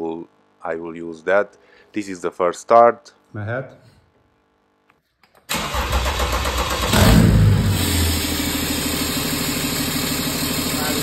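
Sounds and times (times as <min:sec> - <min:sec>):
diesel engine starting and idling: 0:05.5 - 0:11.0.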